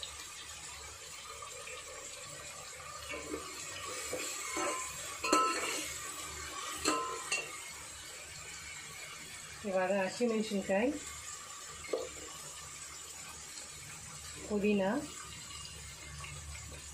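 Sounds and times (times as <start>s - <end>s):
onions sizzling in oil: 0.0s - 16.9s
ladle clinking against metal pot: 4.4s - 5.9s, 6.8s - 7.6s.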